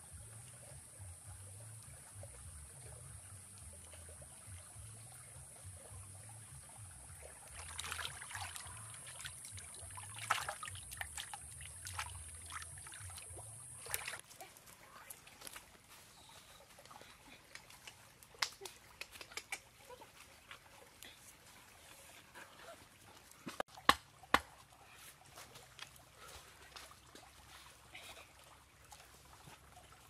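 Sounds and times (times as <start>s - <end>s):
water splashing and sloshing: 0.0s - 30.0s
campfire crackling: 17.0s - 19.7s.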